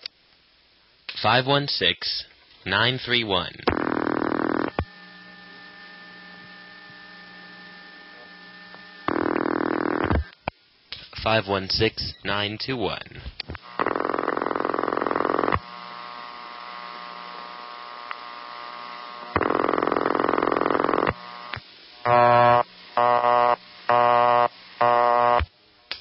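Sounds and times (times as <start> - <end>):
faint line hum: 2.7 - 10.6, 13.3 - 25.5
buzzy telephone ringback tone: 22.1 - 25.4.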